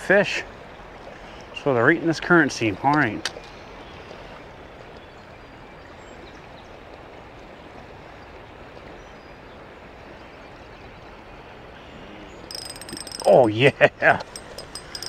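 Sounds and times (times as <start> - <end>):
spinning reel clicking: 12.5 - 13.4, 14.2 - 15.0.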